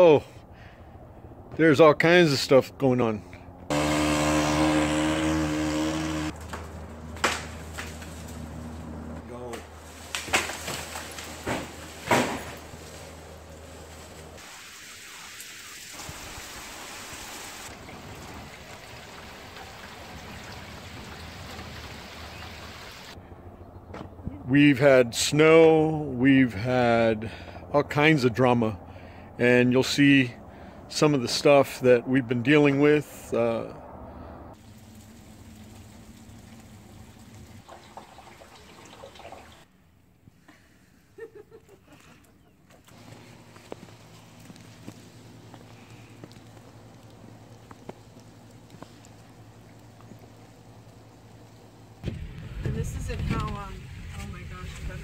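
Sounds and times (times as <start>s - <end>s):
rain falling on pavement and grass: 14.4s - 23.2s, 34.6s - 38.8s, 43.0s - 52.0s
water dripping: 14.6s - 23.0s, 34.6s - 39.7s, 46.2s - 51.6s.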